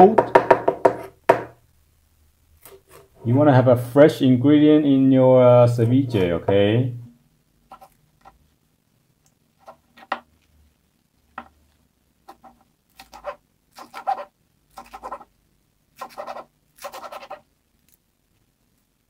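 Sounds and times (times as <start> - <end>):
knife chopping on plastic board: 0.1 - 1.6, 12.3 - 15.3, 16.0 - 17.4.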